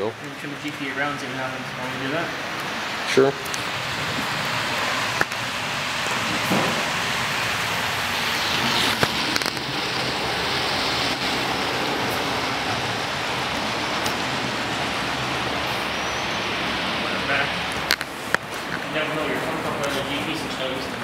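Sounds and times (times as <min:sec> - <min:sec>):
rushing background noise: 0:00.0 - 0:21.0.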